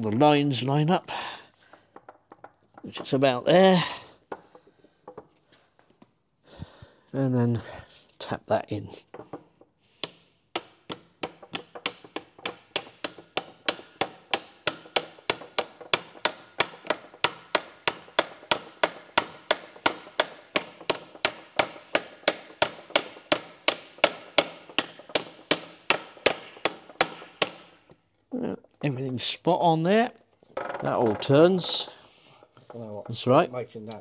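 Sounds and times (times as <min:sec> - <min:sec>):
hammer tapping on metal: 0:10.0 - 0:28.0.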